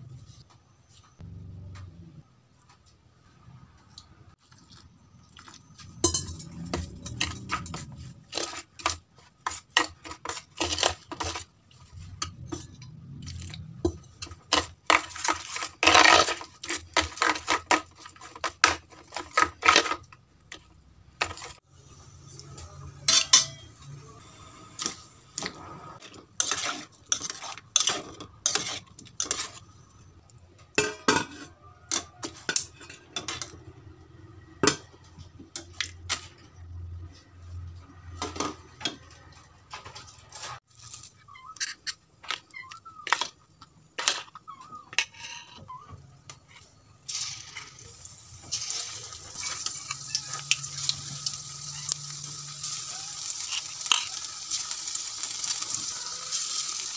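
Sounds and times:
metal spoon clinking in steel bowl: 0:06.0 - 0:07.8, 0:23.0 - 0:23.8.

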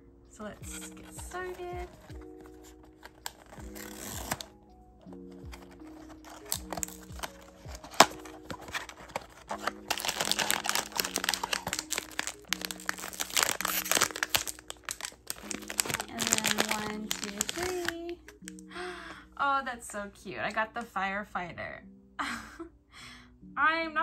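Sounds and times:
soft background music: 0:00.0 - 0:24.0
foil bag crinkling: 0:00.8 - 0:18.6.

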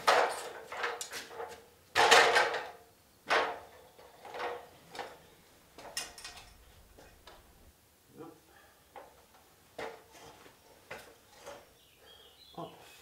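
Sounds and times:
metal ladder clattering: 0:00.0 - 0:05.2, 0:05.8 - 0:07.3.

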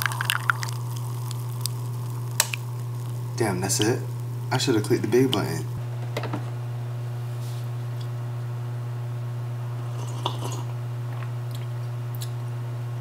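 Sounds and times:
person sipping coffee: 0:00.0 - 0:03.3, 0:09.8 - 0:10.8
steady low hum: 0:00.0 - 0:13.0.

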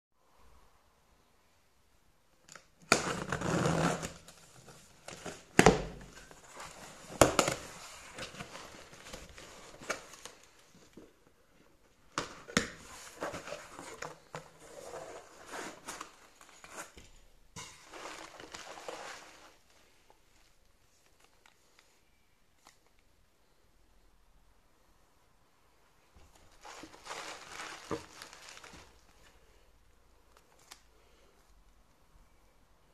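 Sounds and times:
packing tape ripping: 0:02.8 - 0:04.3
cardboard and bubble wrap rustling: 0:02.9 - 0:21.8, 0:26.2 - 0:29.7.

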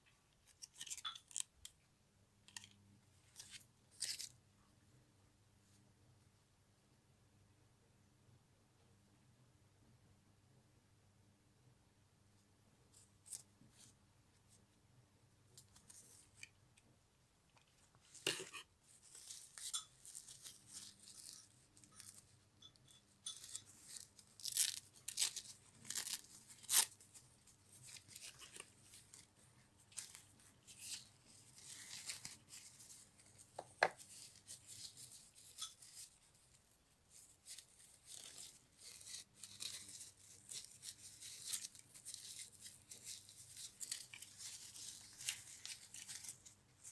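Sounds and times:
packaging tearing and crinkling: 0:23.9 - 0:27.0.

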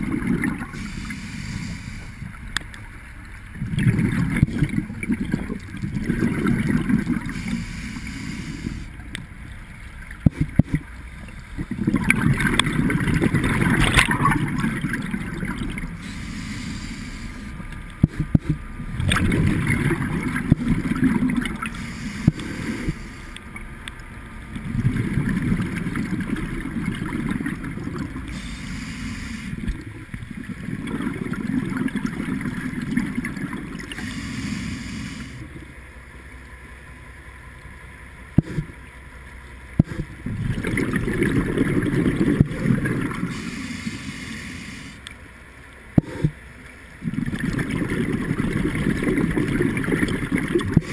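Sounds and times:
regulator exhale bubbling: 0:00.0 - 0:02.4, 0:03.6 - 0:09.0, 0:11.5 - 0:23.6, 0:24.6 - 0:35.6, 0:38.4 - 0:38.8, 0:39.8 - 0:45.1, 0:46.0 - 0:50.9
regulator inhalation hiss: 0:00.8 - 0:02.2, 0:07.3 - 0:08.9, 0:16.0 - 0:17.6, 0:21.7 - 0:23.4, 0:28.3 - 0:29.6, 0:34.0 - 0:35.4, 0:43.3 - 0:45.0.

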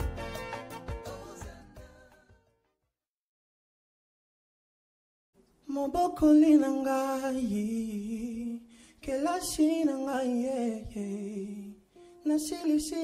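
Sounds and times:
man singing gospel song: 0:00.9 - 0:02.3, 0:05.6 - 0:13.0.

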